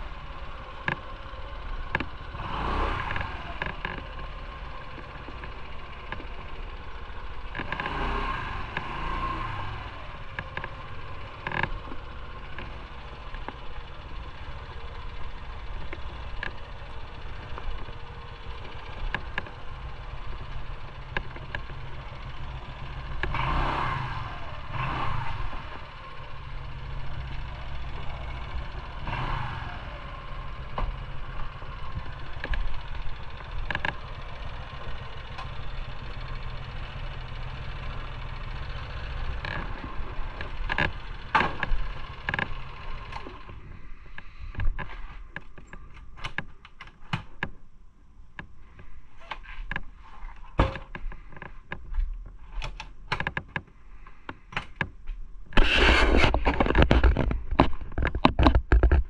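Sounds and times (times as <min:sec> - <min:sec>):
motorcycle engine idling: 0:00.0 - 0:46.0
sharp clicks and knocks: 0:00.8 - 0:01.1, 0:01.8 - 0:02.2, 0:03.0 - 0:06.6, 0:07.4 - 0:08.1, 0:10.3 - 0:13.8, 0:15.7 - 0:23.4, 0:30.6 - 0:35.7, 0:38.0 - 0:47.6, 0:48.3 - 0:59.0.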